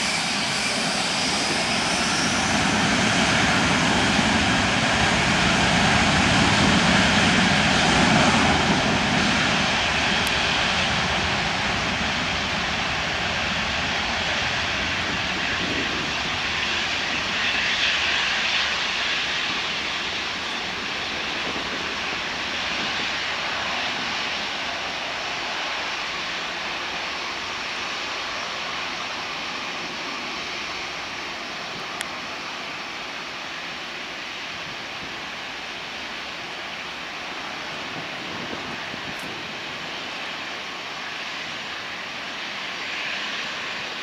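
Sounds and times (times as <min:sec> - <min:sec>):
jet engine roar: 0:00.0 - 0:44.0.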